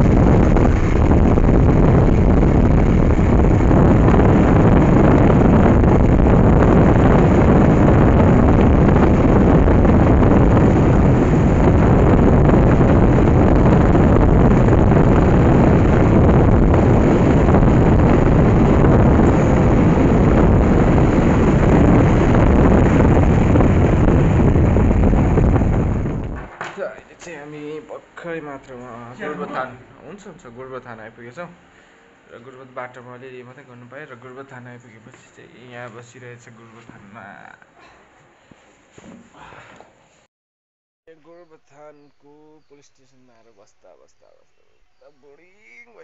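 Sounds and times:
motorcycle engine: 0.0s - 26.6s
wind rushing on microphone: 0.0s - 26.6s.

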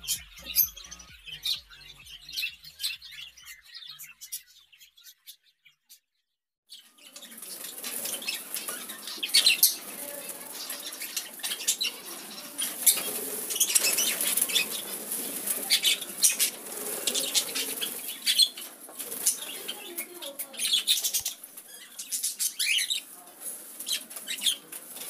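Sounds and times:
budgies flapping wings: 7.0s - 25.0s.

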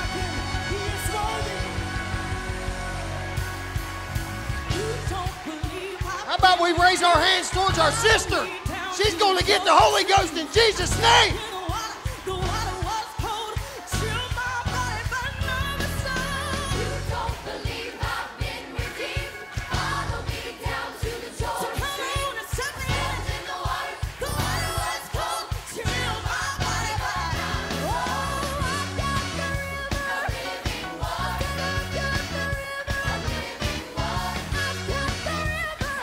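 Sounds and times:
many voices singing: 0.0s - 3.4s, 4.7s - 36.0s
band playing: 0.0s - 36.0s.

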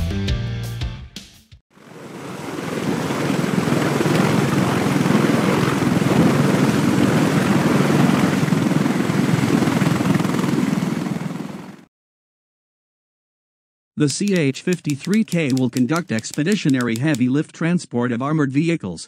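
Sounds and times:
helicopter rotor and turbine: 1.7s - 11.9s, 14.1s - 17.2s.

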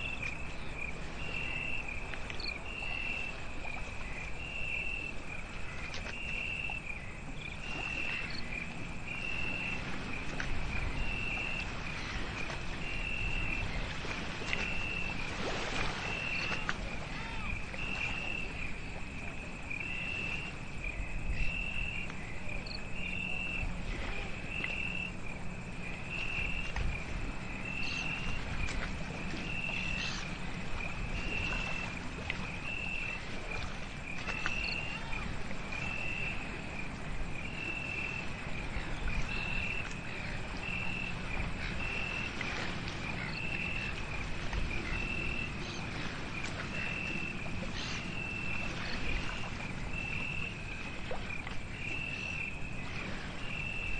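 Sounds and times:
insect high chirp: 0.0s - 28.8s, 29.4s - 53.9s
faint ticks: 2.1s - 2.6s.

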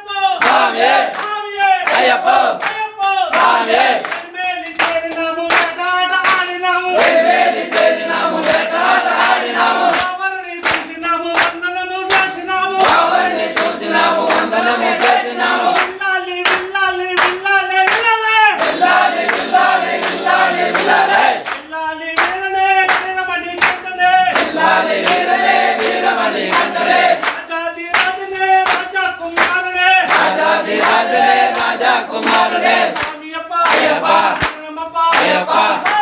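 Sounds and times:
men singing and chanting: 0.0s - 36.0s.

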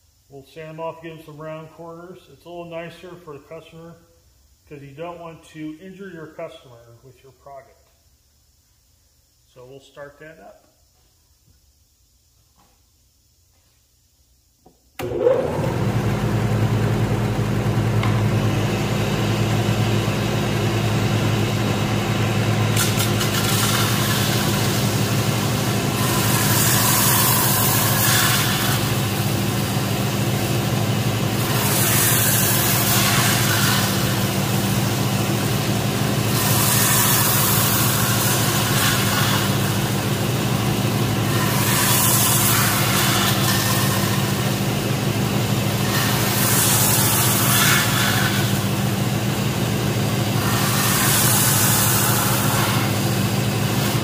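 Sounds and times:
sander motor hum: 15.0s - 54.0s
wood rasping on sanding belt: 22.8s - 29.4s, 31.4s - 35.6s, 36.2s - 40.1s, 41.2s - 44.7s, 45.7s - 48.8s, 50.2s - 54.0s.

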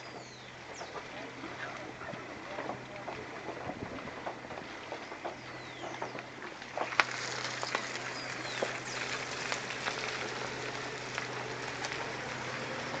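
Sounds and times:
low engine hum: 0.0s - 13.0s
tyres crackling over mud and stones: 0.0s - 13.0s.

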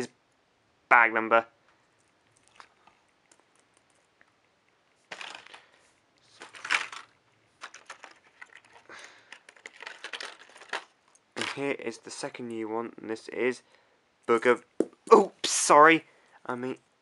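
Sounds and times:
packaging rustling: 5.0s - 11.6s.

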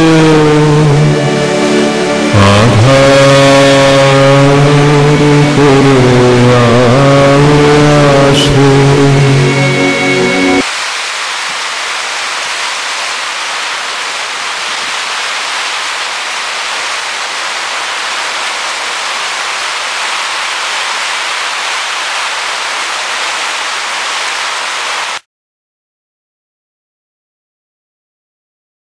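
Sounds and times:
heavy rain running off roof: 0.0s - 9.5s, 10.6s - 25.2s.

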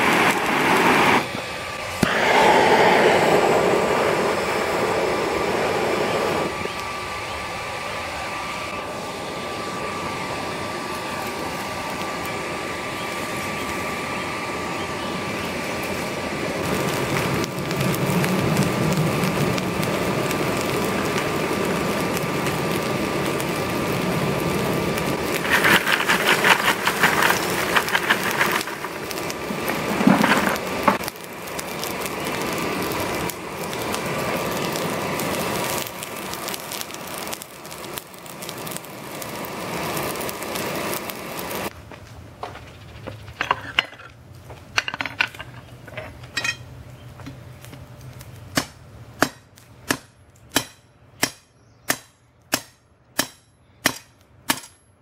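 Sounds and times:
forge air rushing: 0.0s - 41.8s
crackling and popping: 16.6s - 46.6s.

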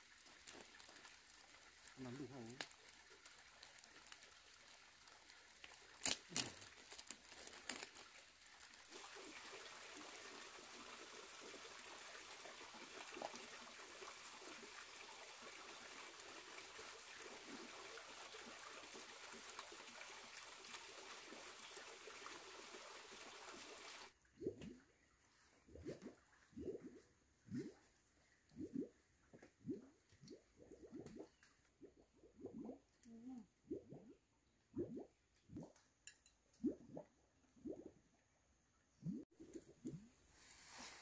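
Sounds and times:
trickling water: 0.0s - 41.0s
plastic bags rustling: 6.0s - 8.2s.

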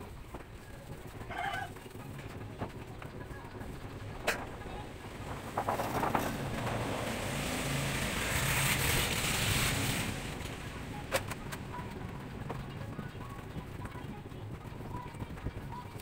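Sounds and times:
motor vehicle passing by: 4.8s - 13.1s.

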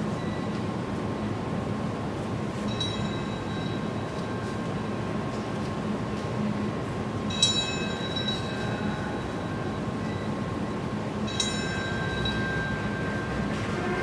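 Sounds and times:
city hum: 0.0s - 14.0s
bell tolling: 11.3s - 14.0s.

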